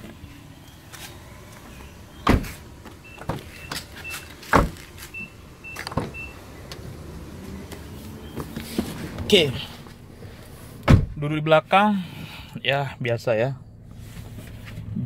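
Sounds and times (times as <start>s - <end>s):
car door unlatching click: 2.2s - 2.6s, 3.2s - 6.8s, 10.8s - 11.2s
footsteps: 7.4s - 10.8s.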